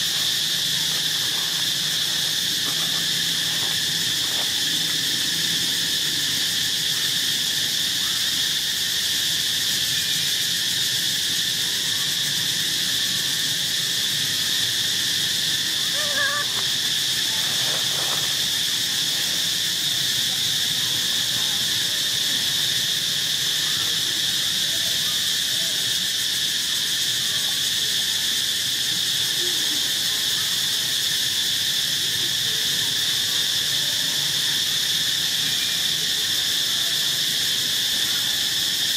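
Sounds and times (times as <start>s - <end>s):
insect chorus drone: 0.0s - 38.9s
faint pitched call: 15.8s - 16.7s.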